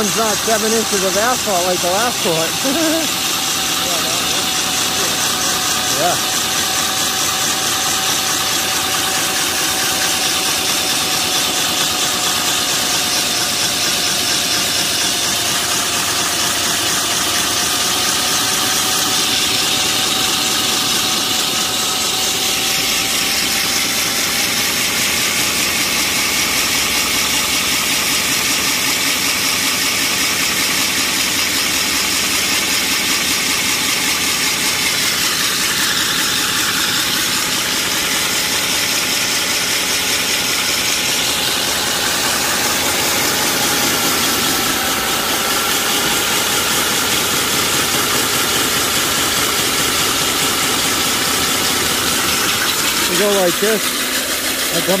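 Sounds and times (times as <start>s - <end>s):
steady whine: 0.0s - 13.6s, 33.5s - 55.0s
core drill grinding through asphalt: 0.0s - 55.0s.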